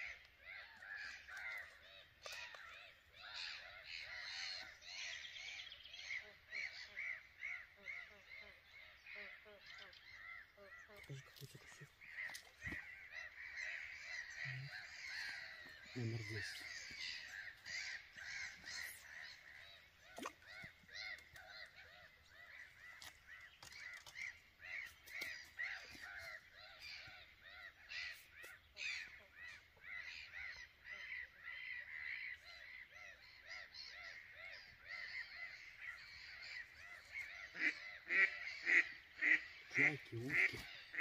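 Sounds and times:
gulls calling: 0.0 - 32.0
ducks quacking: 6.1 - 32.1, 35.0 - 41.0.

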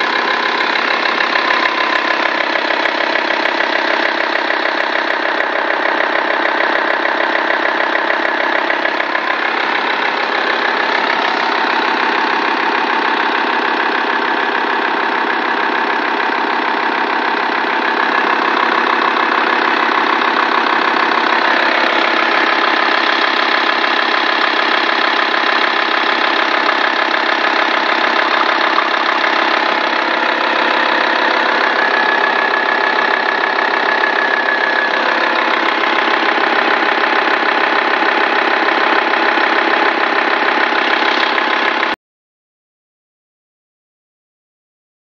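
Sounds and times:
diesel engine idling: 0.0 - 42.0.

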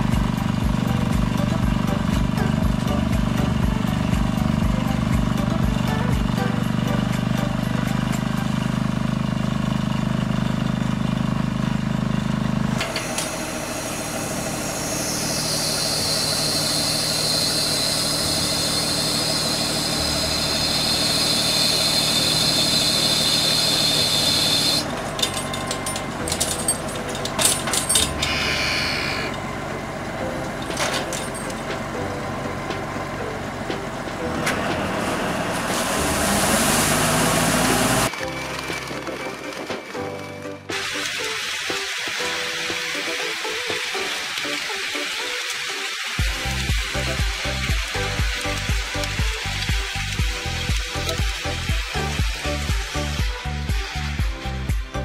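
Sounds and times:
small tractor humming: 0.0 - 55.0
tractor high whine: 0.0 - 55.0
knocks and clanks: 24.8 - 28.4, 30.4 - 34.9.

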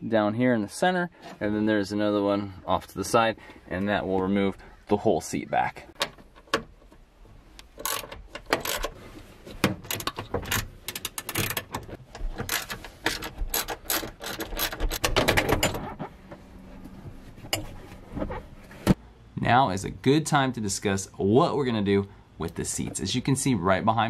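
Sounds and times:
socket ratchet clicking: 7.7 - 8.9.

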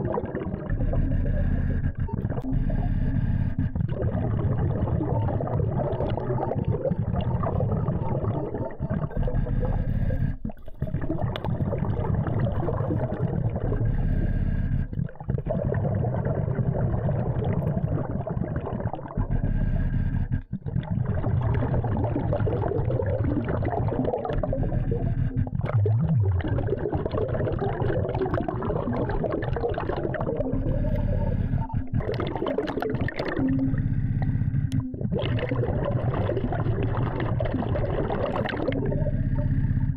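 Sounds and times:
exhaled bubbles underwater: 0.0 - 39.9.

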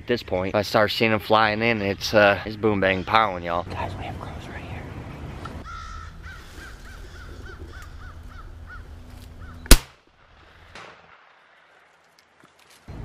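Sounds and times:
crow cawing: 5.6 - 8.9
shotgun blast: 9.7 - 10.0.

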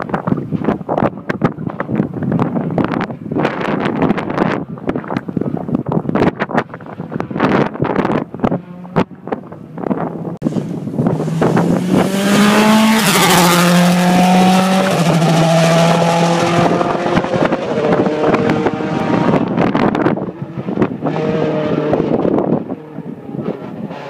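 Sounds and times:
rally car engine passing: 10.5 - 24.0.

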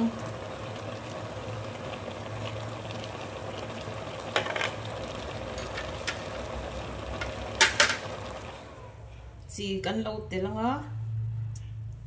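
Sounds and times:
induction cooktop hum and hiss: 0.0 - 12.0
kitchenware clatter: 4.4 - 4.8, 7.6 - 8.1.

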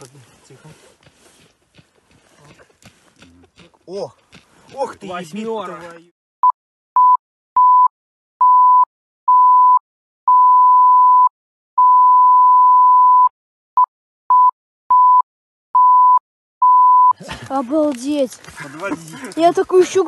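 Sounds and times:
censor bleep tone: 6.4 - 13.3, 14.3 - 15.2, 15.8 - 17.2.

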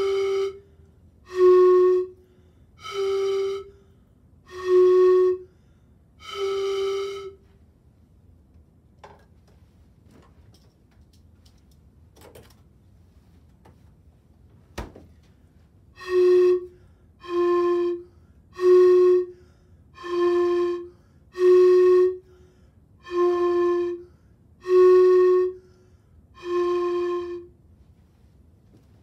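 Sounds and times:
hollow flute-like pipe tones: 0.0 - 5.6, 6.2 - 7.6, 15.9 - 22.4, 23.0 - 27.6.

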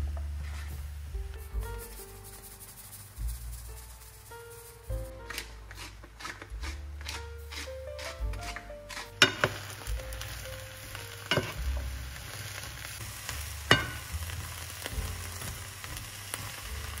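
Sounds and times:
eggplant sizzling in oil: 0.0 - 17.0
wooden spatula knocking on pan: 9.2 - 10.4, 11.3 - 12.0, 13.7 - 16.6.

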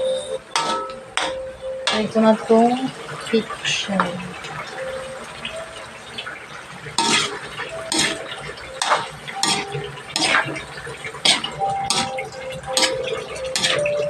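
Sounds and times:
metal spatula scraping wok: 7.0 - 14.0.

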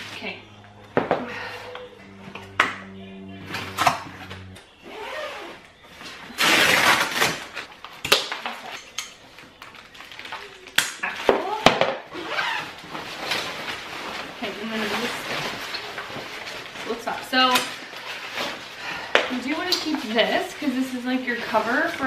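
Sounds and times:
plastic packaging crinkling: 6.4 - 11.3.

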